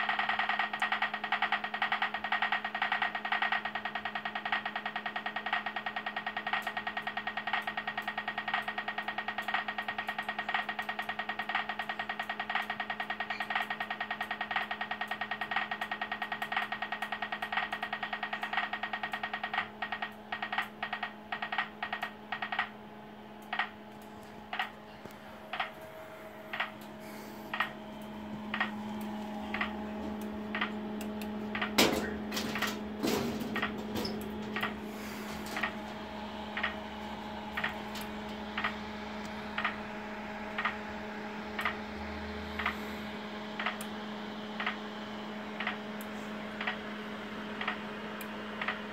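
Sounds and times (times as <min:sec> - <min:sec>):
steady low hum: 0:00.0 - 0:48.9
loud knocks and rattles: 0:31.4 - 0:36.8.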